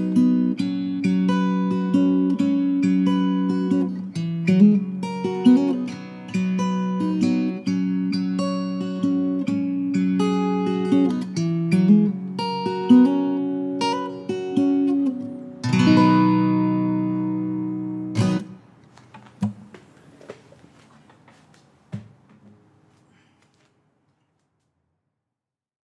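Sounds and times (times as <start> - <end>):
acoustic guitar playing: 0.0 - 21.3
guitar damping thump: 21.1 - 22.6.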